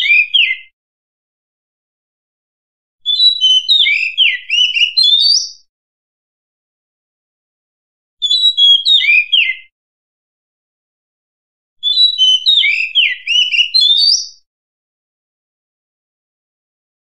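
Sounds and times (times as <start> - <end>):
bird whistling song: 0.0 - 0.7, 3.0 - 5.7, 8.2 - 9.7, 11.8 - 14.5.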